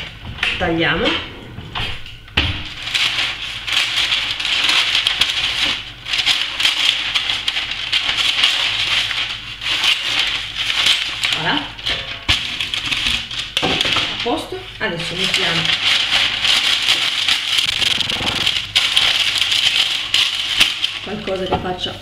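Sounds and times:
parchment paper crinkling: 2.6s - 22.0s
scissors cutting paper: 15.1s - 21.4s.

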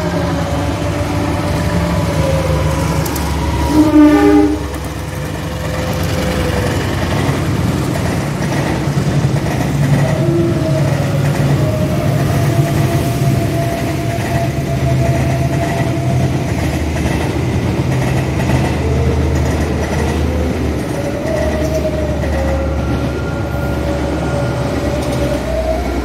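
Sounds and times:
train horn blast: 0.0s - 6.9s
train rumbling past: 0.0s - 26.0s.

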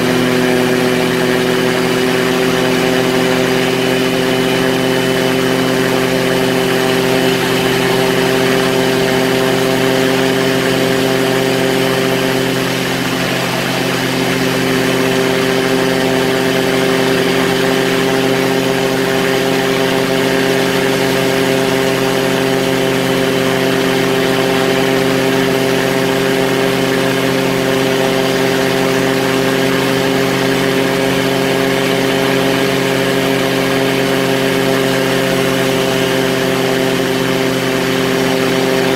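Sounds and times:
aircraft engine and propeller drone: 0.0s - 38.9s.

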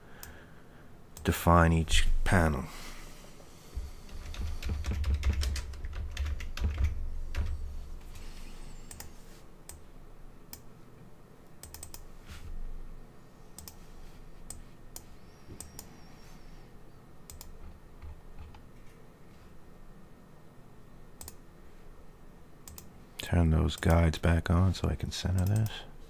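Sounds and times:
keyboard keys clicking: 4.1s - 7.5s.

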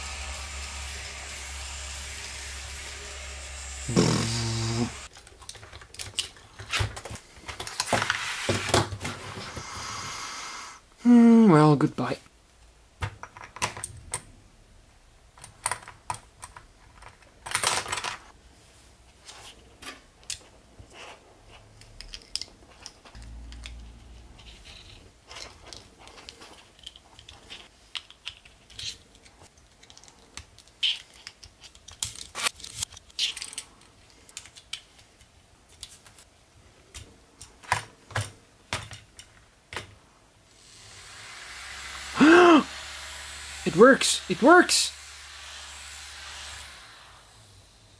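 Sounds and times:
plastic pieces clicking: 5.1s - 7.9s, 15.4s - 18.3s, 21.8s - 23.8s, 24.7s - 36.0s.

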